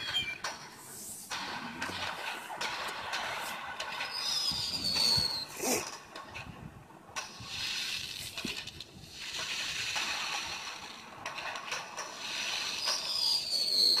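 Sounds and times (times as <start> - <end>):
fireworks hissing and crackling: 0.0 - 14.0
falling firework whistle: 3.9 - 5.6, 12.4 - 14.0.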